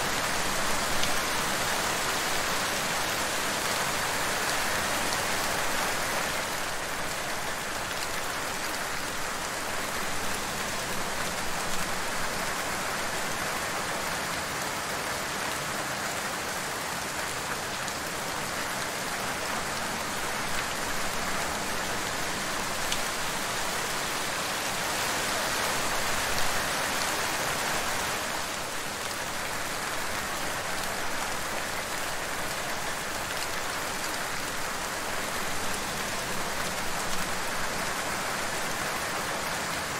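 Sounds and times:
steady rain hiss: 0.0 - 39.9.

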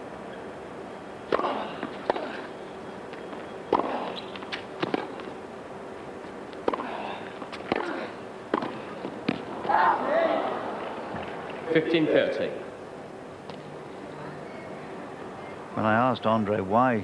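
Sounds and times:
tennis ball bouncing on court: 1.3 - 2.5, 3.3 - 5.4, 6.6 - 9.5
tennis ball struck by rackets: 1.3 - 2.5, 3.7 - 5.3, 6.6 - 9.5.

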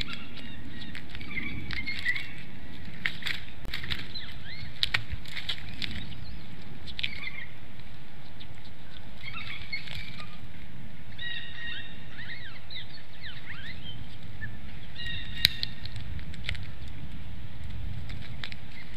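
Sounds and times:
small birds chirping: 0.0 - 18.9
steady low rumble: 0.0 - 18.9
clicks and snap of tearing: 15.0 - 18.9.

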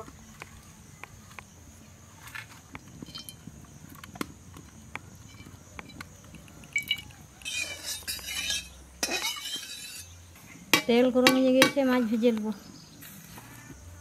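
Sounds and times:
wood fire crackling: 0.0 - 10.4
metal spatula clinking on pan: 6.8 - 10.1
spatula scraping pan: 7.4 - 10.2.

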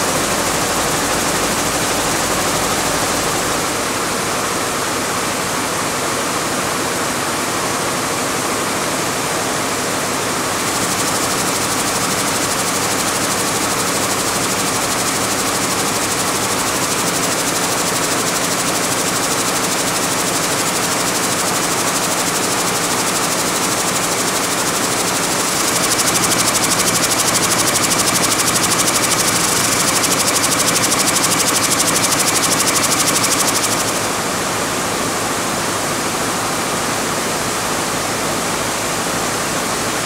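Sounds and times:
weaving looms clattering: 10.7 - 34.1.

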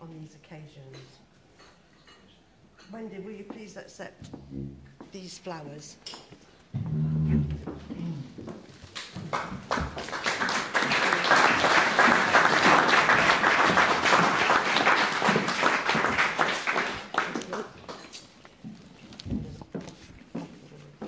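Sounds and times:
crowd applauding: 9.3 - 18.0.

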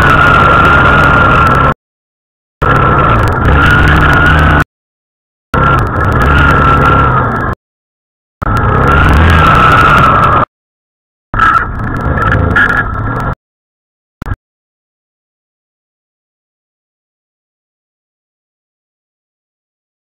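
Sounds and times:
steady high whine: 0.0 - 1.8, 2.6 - 4.7, 5.6 - 7.6, 8.4 - 10.5, 11.4 - 13.4
wind noise: 0.0 - 1.8
atv engine running: 2.6 - 4.6, 5.6 - 7.6, 8.4 - 10.4, 11.4 - 13.4.

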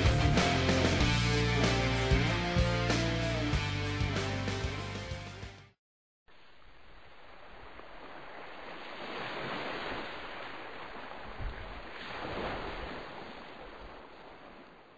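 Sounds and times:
waves: 6.3 - 14.9
wind: 6.3 - 14.9.

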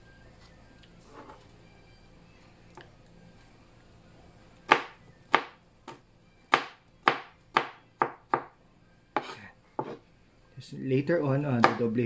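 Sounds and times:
knife chopping on cutting board: 4.7 - 8.6, 9.2 - 10.0, 11.6 - 11.9.

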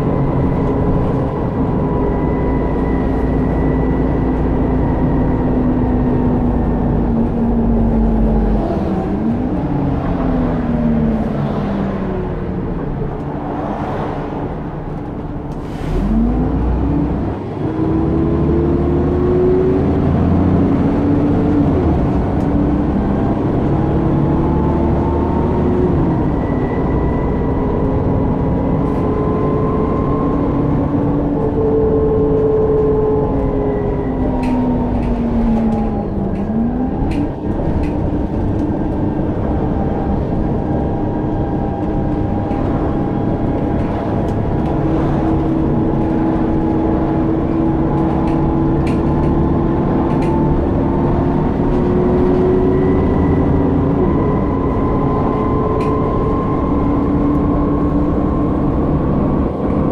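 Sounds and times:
bus engine drone: 0.0 - 59.9
bus whine rising and falling: 0.0 - 59.9.

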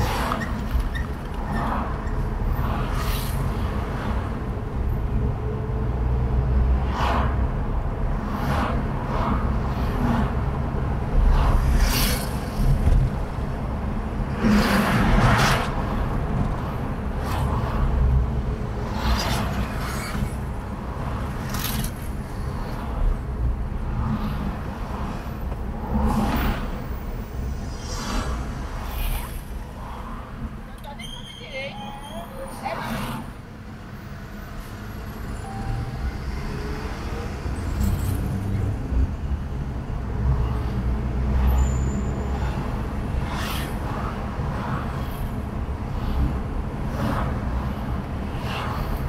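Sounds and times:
car engine and road rumble: 0.0 - 49.0
rushes of noise: 25.8 - 30.6.

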